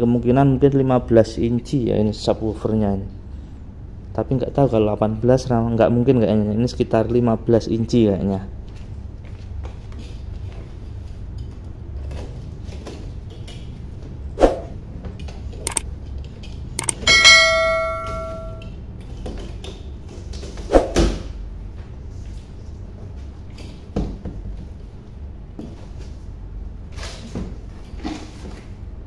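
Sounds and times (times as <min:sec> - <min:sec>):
bell-like ring: 0:16.8 - 0:18.6.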